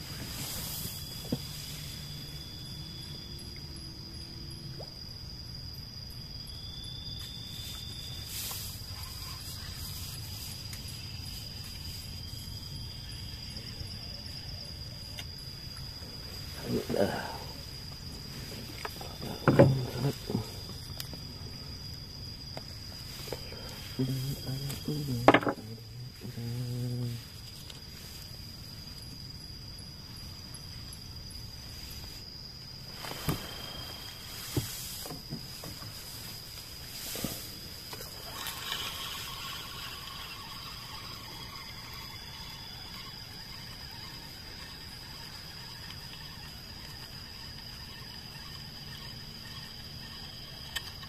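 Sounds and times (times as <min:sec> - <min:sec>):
night insects droning: 0:00.0 - 0:51.0
steady background hiss: 0:00.0 - 0:51.0
short knocks: 0:19.3 - 0:20.4.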